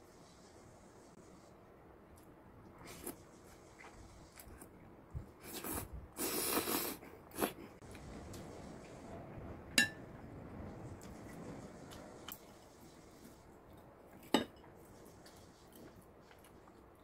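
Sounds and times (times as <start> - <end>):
noodle slurping: 5.4 - 7.6
cutlery clinking on ceramic bowl: 14.3 - 14.7.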